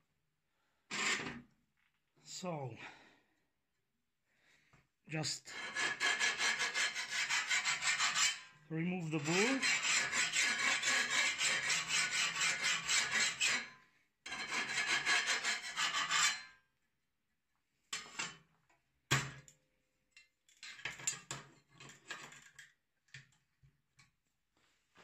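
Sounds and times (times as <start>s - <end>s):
file rasping on steel blade: 5.5s - 8.5s, 9.1s - 13.7s, 14.3s - 16.5s.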